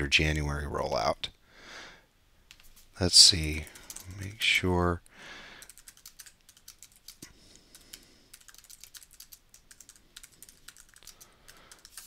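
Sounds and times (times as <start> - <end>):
faint typing on keyboard: 3.4 - 12.0.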